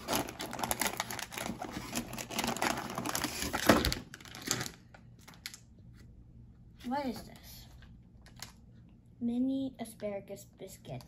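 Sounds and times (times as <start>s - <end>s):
plastic wrappers crinkling: 0.0s - 5.7s.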